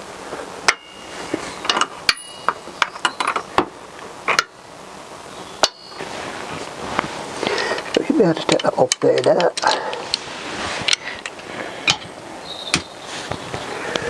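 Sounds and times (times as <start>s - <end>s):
metal ringing: 0.7s - 3.6s, 5.6s - 6.1s.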